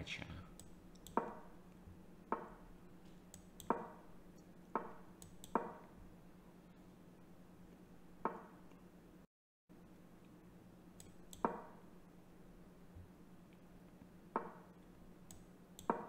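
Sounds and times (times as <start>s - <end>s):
steady low hum: 0.0s - 16.0s
mouse clicks: 0.6s - 1.3s, 3.2s - 3.8s, 5.2s - 5.7s, 11.0s - 11.6s.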